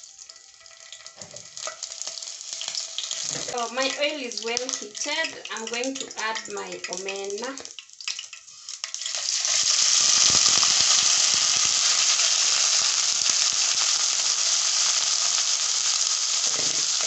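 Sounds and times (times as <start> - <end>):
fish sizzling in hot oil: 0.0 - 17.0
metal spoon scraping a pan: 8.1 - 9.7.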